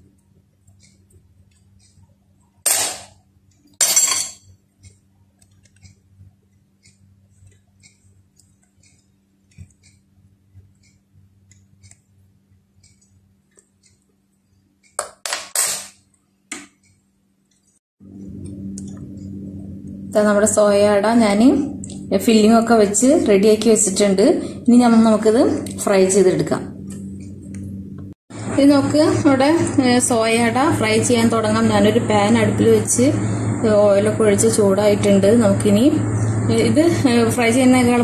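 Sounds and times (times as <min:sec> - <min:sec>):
low steady hum: 0:16.0 - 0:38.0.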